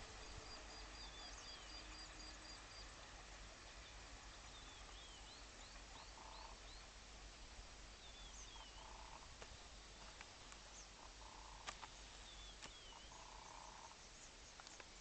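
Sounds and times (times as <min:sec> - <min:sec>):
faint clicks: 0:09.4 - 0:13.3, 0:14.5 - 0:15.0.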